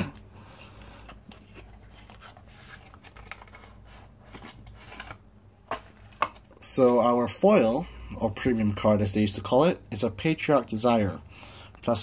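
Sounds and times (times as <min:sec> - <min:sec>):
cards scraping and rustling: 0:00.0 - 0:07.0.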